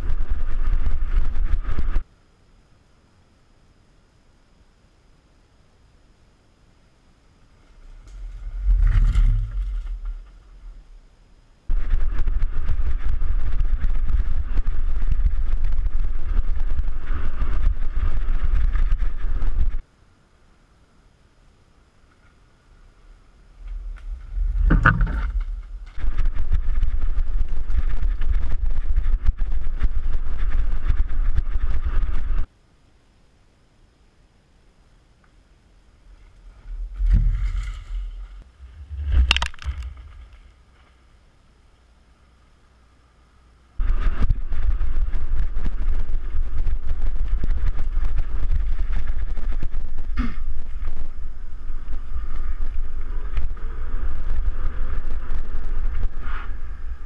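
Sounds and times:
mountain bike passing: 0.0 - 2.0, 7.4 - 11.1, 11.7 - 19.8, 21.9 - 32.5, 35.9 - 41.5, 43.8 - 57.0
faint outdoor hush: 0.0 - 57.0
bike rattling and knocking: 23.8 - 27.0
camera rattling and knocking: 24.0 - 26.4, 38.9 - 40.5.

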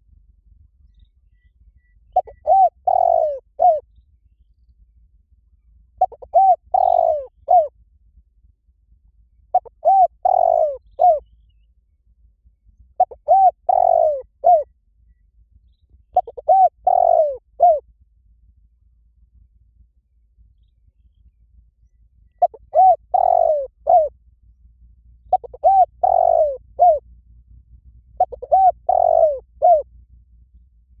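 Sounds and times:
dove cooing: 2.1 - 3.8, 6.0 - 7.7, 9.5 - 11.3, 13.0 - 14.7, 16.1 - 17.8, 22.4 - 24.1, 25.3 - 27.0, 28.2 - 29.9.

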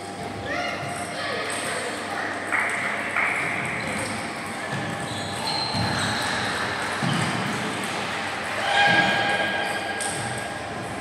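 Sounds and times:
footwork on hall floor: 2.9 - 11.0.

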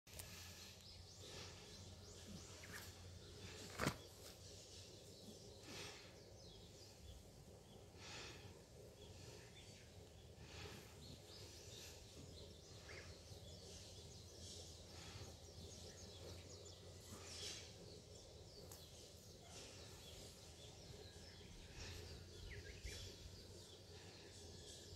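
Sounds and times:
steady low hum: 0.1 - 24.9.

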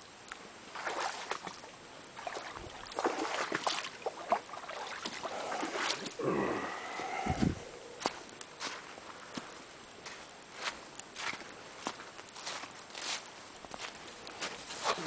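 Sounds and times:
footsteps on dry leaves: 8.0 - 15.0.

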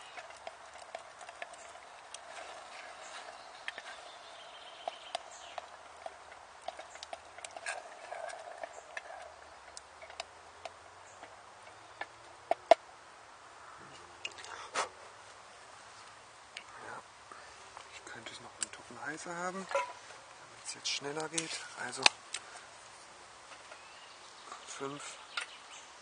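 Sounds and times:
wooden spoon stirring sauce: 0.0 - 10.2.

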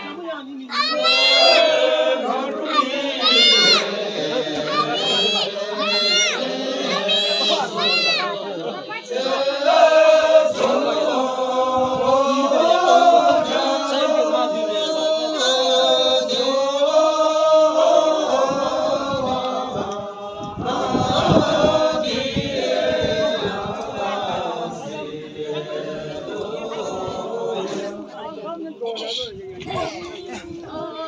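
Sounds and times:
group of voices chanting: 0.7 - 28.4.

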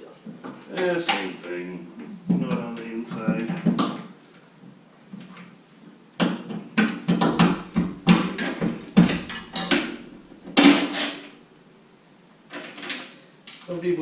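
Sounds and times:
metal clanks of tools and parts: 6.9 - 11.3, 12.5 - 13.7.

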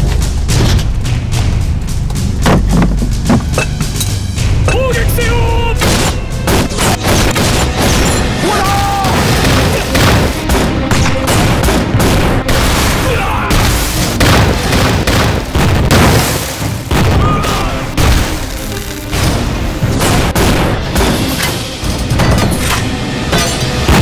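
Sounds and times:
field guns firing: 5.8 - 8.4, 9.0 - 24.0
shells exploding: 9.0 - 24.0.

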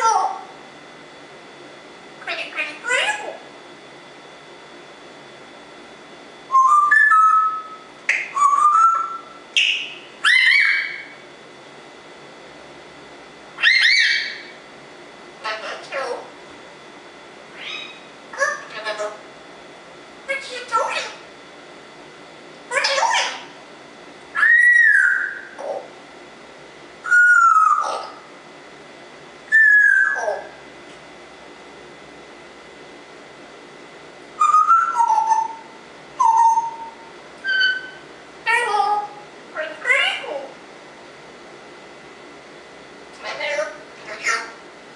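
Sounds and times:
parrot whistling: 6.5 - 11.2, 13.6 - 14.5, 17.6 - 18.7, 24.3 - 25.8, 27.0 - 28.2, 29.5 - 30.5, 34.4 - 38.0.

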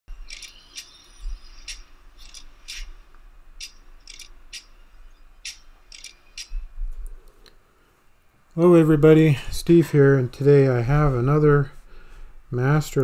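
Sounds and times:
metallic clicks and clinks: 3.6 - 4.7, 5.4 - 6.5.

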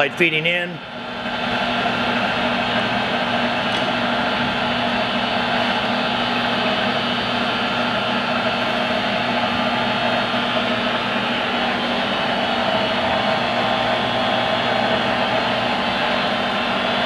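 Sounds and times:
lathe mechanical hum: 0.0 - 17.0.

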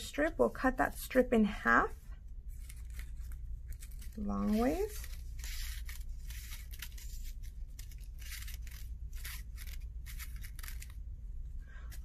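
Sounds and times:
scissors snipping paper: 2.6 - 11.0.

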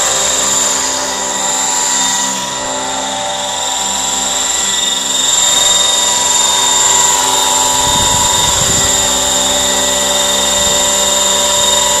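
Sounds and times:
model helicopter whine: 0.0 - 12.0
rotor noise: 0.0 - 12.0.

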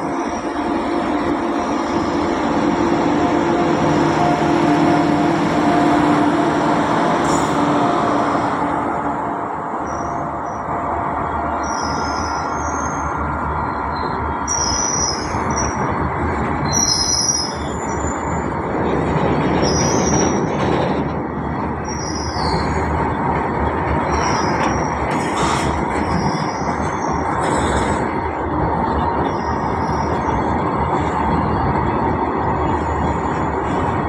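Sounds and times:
freight train wheels rumbling on track: 0.0 - 34.0
high wheel squeals: 11.6 - 15.9, 16.6 - 18.5, 21.8 - 22.9.

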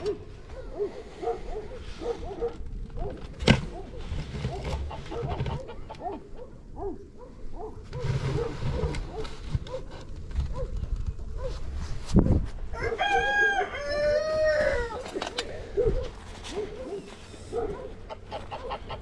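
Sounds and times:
chickens clucking: 4.4 - 6.6, 16.8 - 19.0.

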